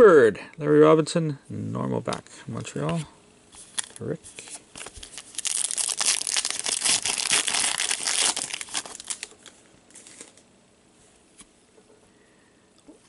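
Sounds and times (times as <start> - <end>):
soft rustles of card handling: 2.6 - 6.6, 8.0 - 11.9
wrapper crinkling as torn open: 3.6 - 10.4.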